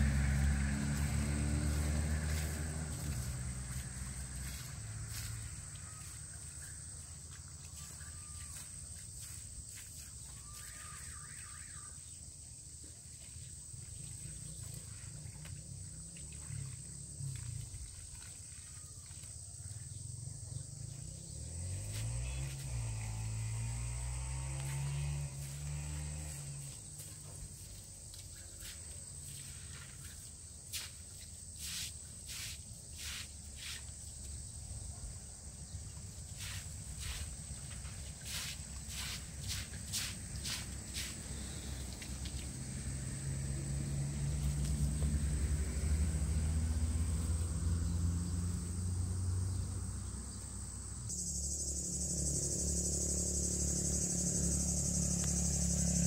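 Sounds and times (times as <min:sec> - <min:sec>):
low outdoor rumble: 0:00.0 - 0:07.5, 0:20.3 - 0:29.1
broom sweeping wet concrete: 0:00.1 - 0:11.8, 0:21.7 - 0:22.9, 0:24.6 - 0:34.2, 0:36.0 - 0:42.6.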